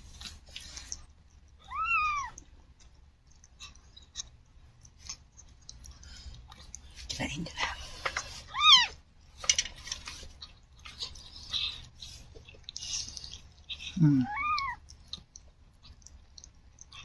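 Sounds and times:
cat licking kitten: 0.0 - 9.3, 10.0 - 17.0
kitten mewing: 13.9 - 14.8.

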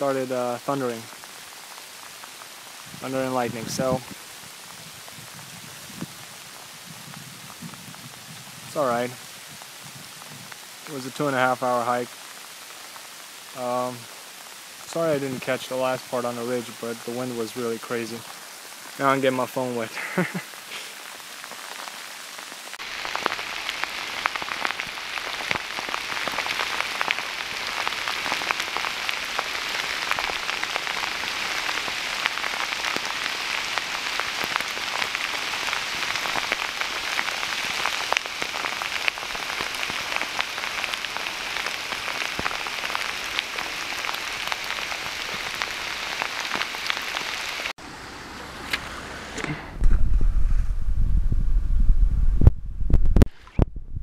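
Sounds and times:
rain falling: 0.0 - 50.0.

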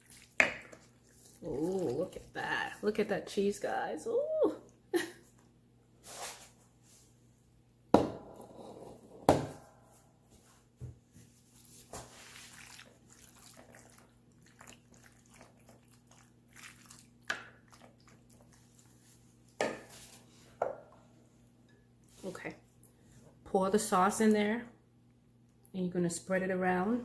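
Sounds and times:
spoon scraping and wet squishing: 0.0 - 3.1, 11.4 - 20.6.

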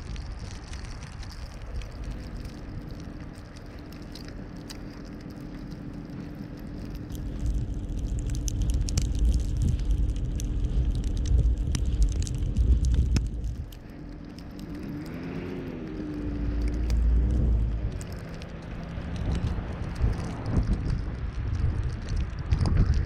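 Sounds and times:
car road and engine rumble: 0.0 - 23.0
scattered clicks and ticks: 0.0 - 23.0.

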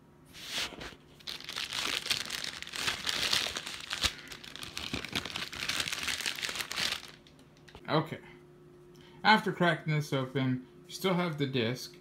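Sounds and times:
packaging crinkling and tearing: 0.5 - 7.8.

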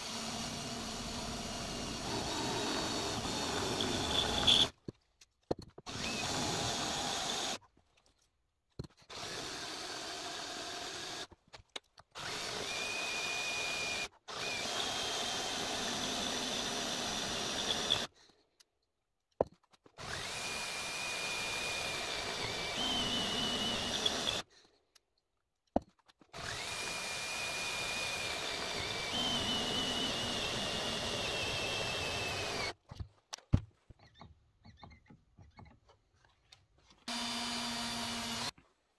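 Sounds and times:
cordless drill boring into steel: 0.0 - 4.8, 5.9 - 7.6, 9.1 - 11.3, 12.2 - 18.1, 20.0 - 24.5, 26.4 - 32.8, 37.1 - 38.6
high squeal of drill bit: 0.3 - 4.8, 12.3 - 18.1, 20.1 - 24.4.

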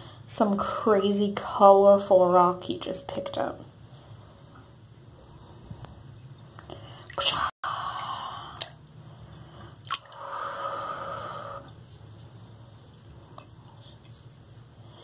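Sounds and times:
water trickling and sloshing: 6.5 - 10.8
bath water splashing: 7.0 - 14.5.

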